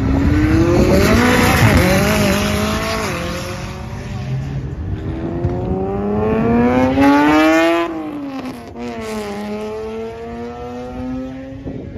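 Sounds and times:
sports car engine accelerating: 0.0s - 11.8s.

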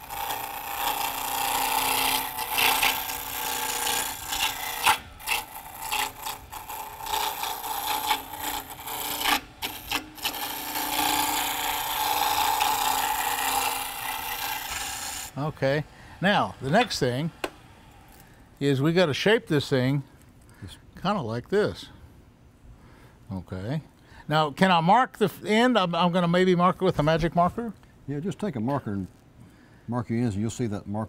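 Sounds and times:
lathe tool scraping wood: 0.0s - 18.2s.

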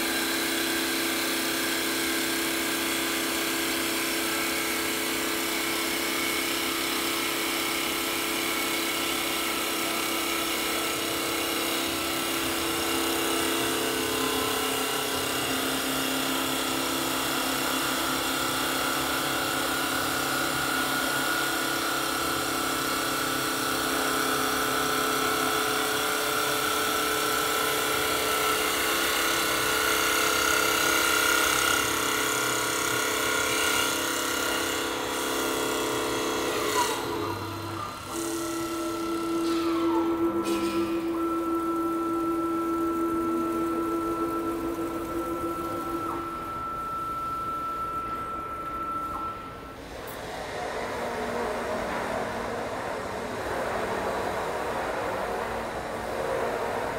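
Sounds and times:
wood cutting noise: 0.0s - 56.6s
lathe motor whine: 0.0s - 56.9s
higher whine: 37.1s - 51.9s.

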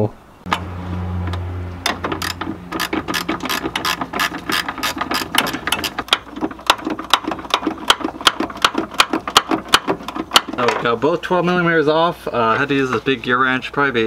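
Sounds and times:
ratcheting wrench clicking: 1.9s - 9.5s.

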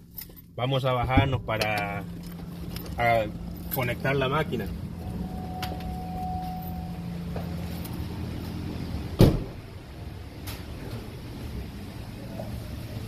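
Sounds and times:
low hum: 0.0s - 13.0s
car door shutting: 9.2s - 9.7s.

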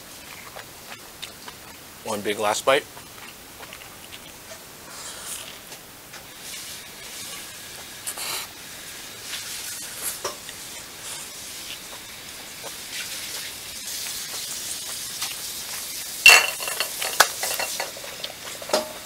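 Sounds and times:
person chewing noodles: 0.1s - 1.9s, 2.8s - 5.8s, 9.3s - 16.0s
rustling and knocks: 16.3s - 19.0s.

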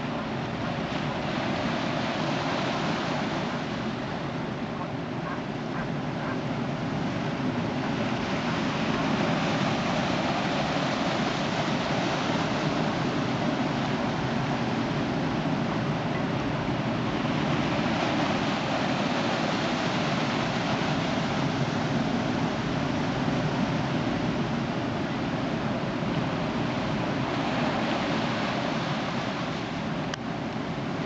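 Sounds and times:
waves breaking on beach: 0.0s - 31.0s.

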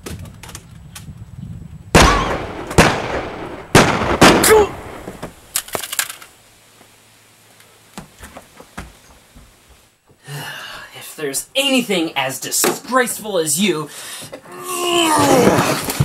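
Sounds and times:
pistol gunshots with echo: 2.0s - 5.2s.

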